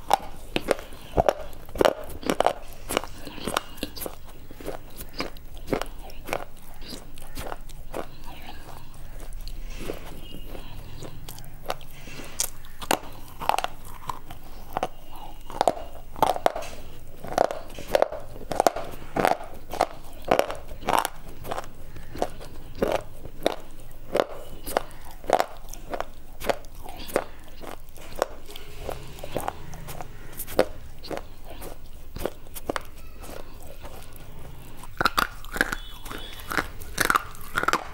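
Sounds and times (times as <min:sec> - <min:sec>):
crunchy chewing: 0:00.0 - 0:37.9.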